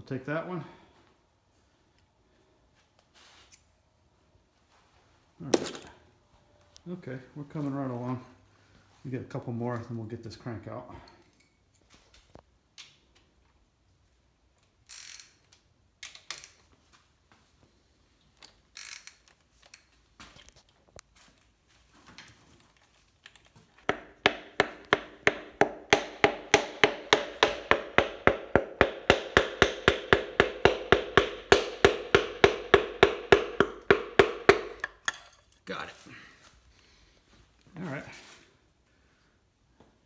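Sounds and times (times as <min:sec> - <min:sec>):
hammer tapping on metal: 0:23.9 - 0:35.2.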